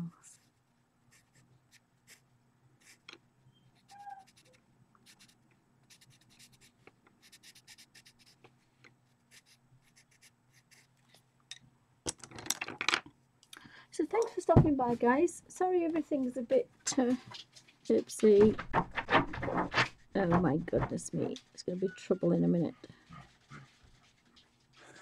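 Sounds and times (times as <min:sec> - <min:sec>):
pencil scratching on paper: 0:01.1 - 0:02.2, 0:02.8 - 0:03.0, 0:03.8 - 0:08.4, 0:09.3 - 0:10.9.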